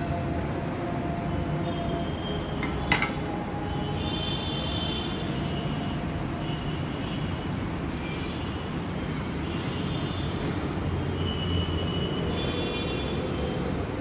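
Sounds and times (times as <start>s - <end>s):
frying pan clacking on grate: 2.6s - 3.2s.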